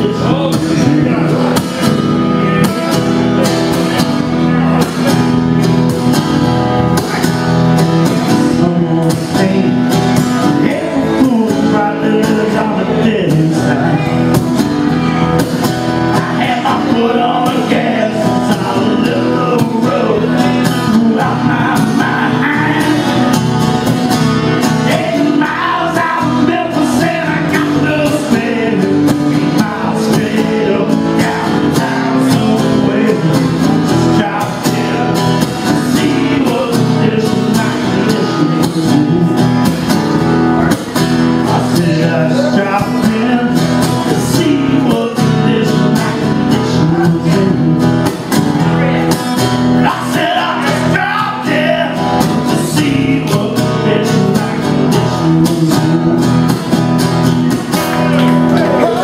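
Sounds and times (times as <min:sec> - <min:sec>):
man singing into a microphone: 0:00.0 - 0:05.4, 0:08.0 - 0:15.4, 0:16.0 - 0:56.8, 0:58.3 - 0:59.0
acoustic guitar strumming: 0:00.0 - 0:59.0.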